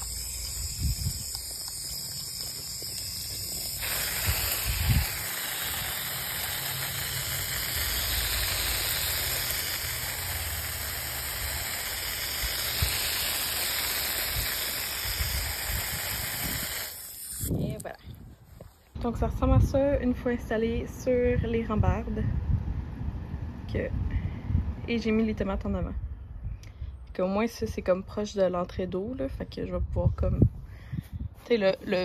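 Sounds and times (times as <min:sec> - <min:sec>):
hose nozzle spraying water: 0:00.0 - 0:19.0.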